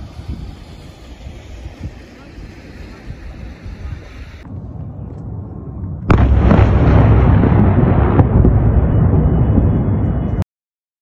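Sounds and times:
heavy low rumbling: 0.0s - 10.4s
loud explosion: 5.3s - 10.4s.

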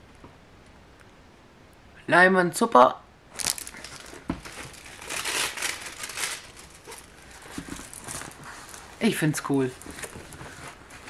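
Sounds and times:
packaging crinkling: 3.3s - 11.0s.

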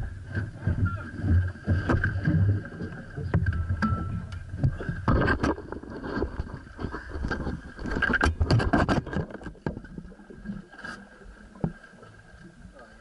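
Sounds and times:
camera knocking and scraping: 4.6s - 9.8s.

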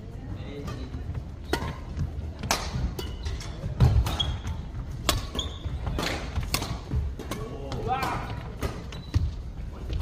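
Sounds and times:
court shoes squeaking: 0.5s - 10.0s
rackets striking shuttlecock: 1.4s - 9.3s.

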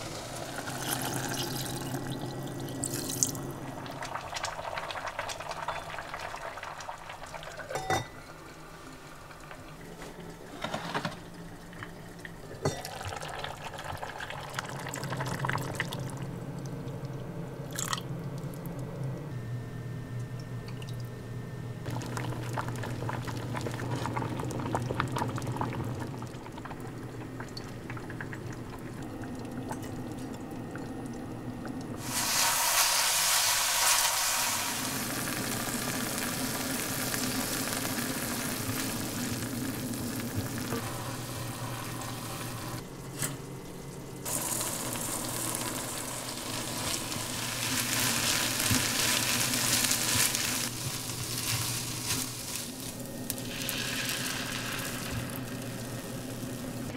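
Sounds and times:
hot pan sizzling: 0.0s - 8.0s, 32.0s - 42.8s, 44.2s - 56.9s
wooden spatula stir-frying rice: 48.2s - 53.0s.

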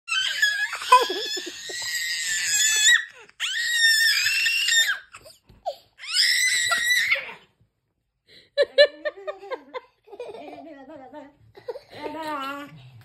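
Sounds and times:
baby squealing: 0.1s - 5.3s.

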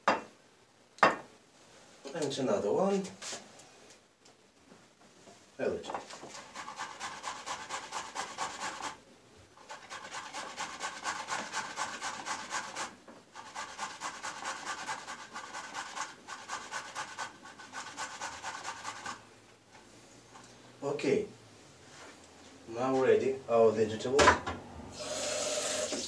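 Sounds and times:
grating on box grater: 6.3s - 9.0s, 9.6s - 19.2s.

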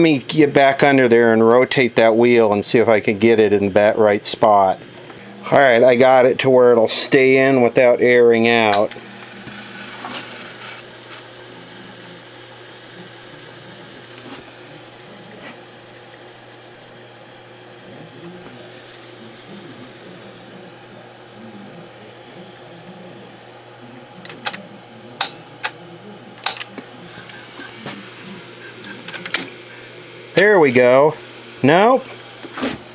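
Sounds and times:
video recorder mechanical hum: 0.0s - 32.9s
sharp clicks: 26.4s - 26.8s.

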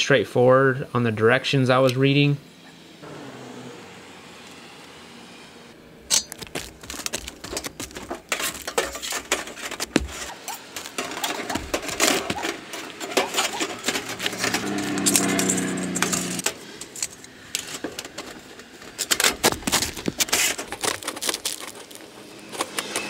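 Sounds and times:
sheet metal clinking and rattling: 7.4s - 18.4s.

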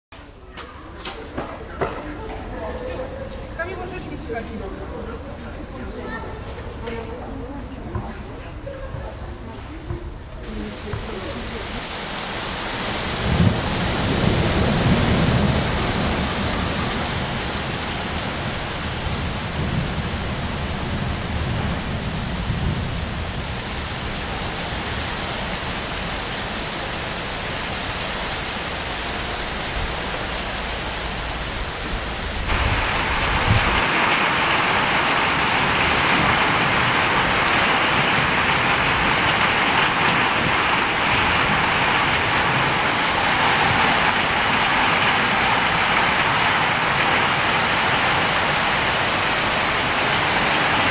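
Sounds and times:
rain falling: 0.2s - 50.9s
heavy rain hissing on asphalt: 10.4s - 50.9s
low rolling thunder: 12.8s - 25.8s, 31.7s - 50.9s.

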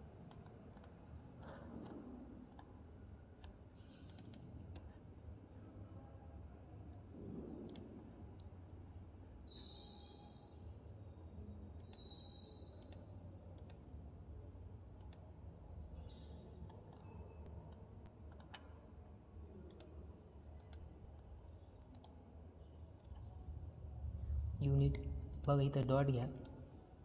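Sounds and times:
faint low hum: 0.0s - 27.0s
computer mouse clicking: 3.4s - 5.0s, 7.7s - 8.5s, 12.8s - 13.8s, 15.0s - 15.2s, 19.7s - 20.9s, 21.8s - 22.2s.

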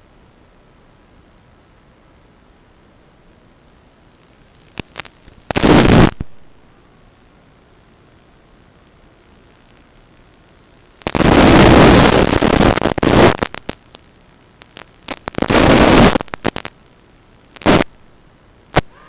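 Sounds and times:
faint steady hiss: 0.0s - 19.0s
bursts of radio static: 4.6s - 6.4s, 10.9s - 18.0s, 18.7s - 19.0s.

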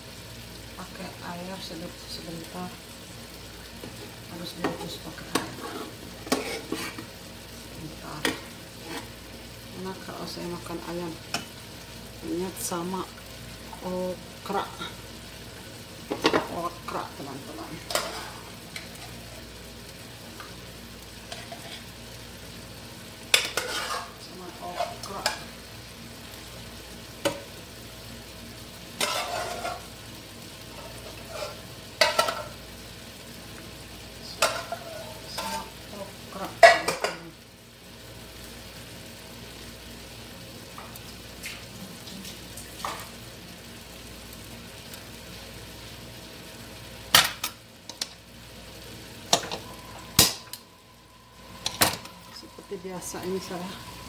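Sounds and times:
steady background hiss: 0.0s - 54.0s
utensil scraping a pot: 5.4s - 7.1s, 8.8s - 9.1s, 17.8s - 19.2s, 23.4s - 25.3s, 29.0s - 29.9s, 30.7s - 32.5s.

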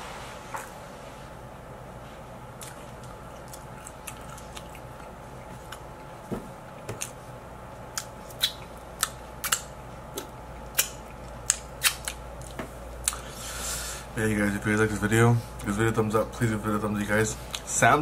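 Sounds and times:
faint steady hum: 0.0s - 18.0s
chewing mouth sounds: 2.6s - 6.2s, 7.9s - 13.3s.

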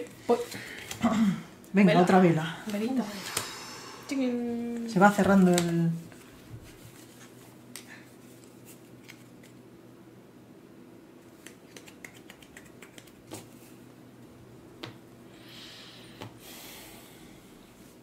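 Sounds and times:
low room hum: 0.0s - 18.0s
playing cards clicking: 11.4s - 13.5s.

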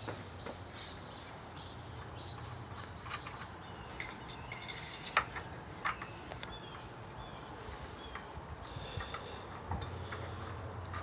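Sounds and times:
birds chirping: 0.0s - 11.0s
light clicks and clinks: 2.4s - 6.6s, 7.2s - 11.0s.

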